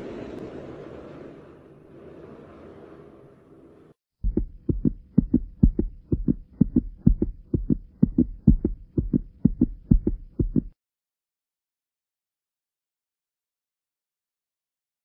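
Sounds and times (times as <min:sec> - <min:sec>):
heartbeat-style deep thuds: 0:04.2 - 0:10.8.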